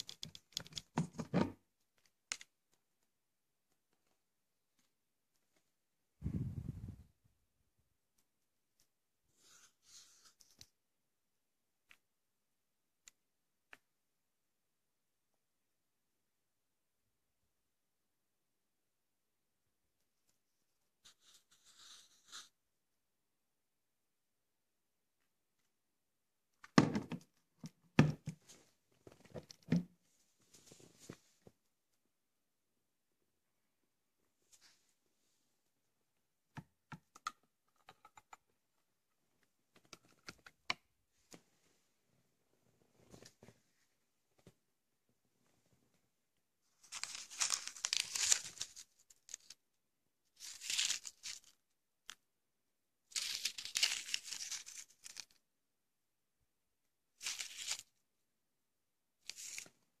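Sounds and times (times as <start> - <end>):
packaging crinkling and rustling: 46.8 - 49.6, 50.4 - 51.6, 53.1 - 55.4.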